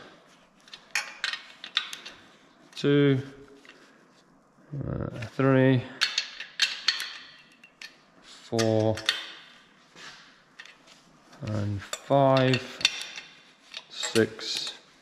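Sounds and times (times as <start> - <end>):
person speaking: 2.7 - 3.7, 4.6 - 6.0, 8.4 - 9.1, 11.4 - 12.8, 13.9 - 14.9.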